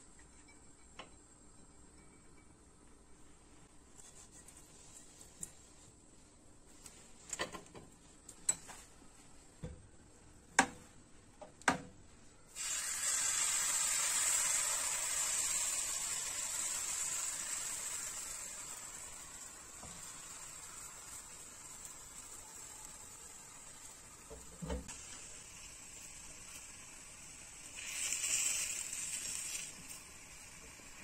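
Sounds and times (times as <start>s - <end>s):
batter sizzling in hot pan: 12.5s - 31.0s.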